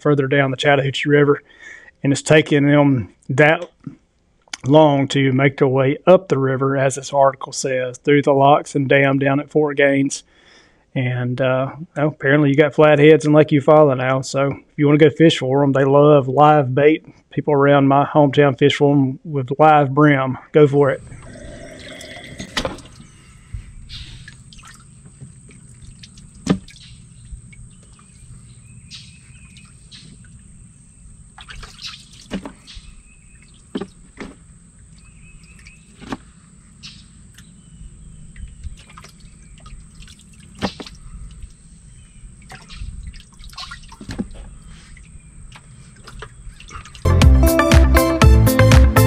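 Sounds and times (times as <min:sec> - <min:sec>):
splashes: 0:21.0 - 0:36.4, 0:38.4 - 0:47.1
water sloshing and dripping: 0:21.0 - 0:47.1.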